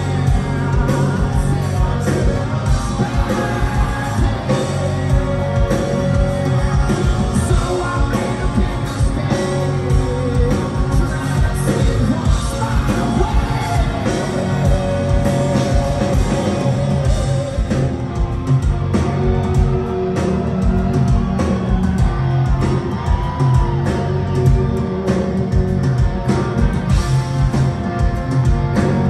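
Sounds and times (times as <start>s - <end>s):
male lead vocal: 0.0s - 18.0s
live rock band playing: 0.0s - 29.0s.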